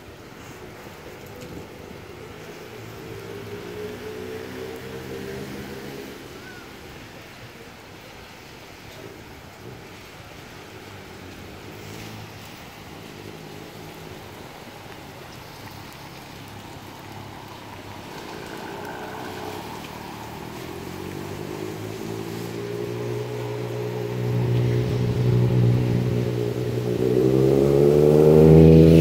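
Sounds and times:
steady wet hiss: 0:00.0 - 0:29.0
engine running: 0:16.6 - 0:29.0.

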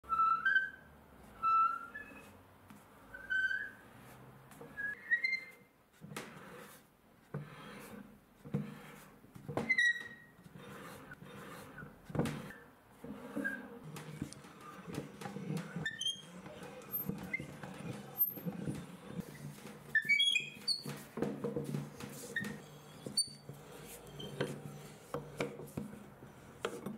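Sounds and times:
screw squeaking and creaking: 0:07.4 - 0:26.9.

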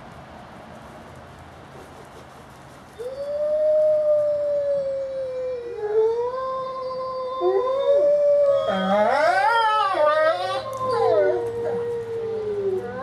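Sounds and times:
wolves howling: 0:03.0 - 0:13.0.

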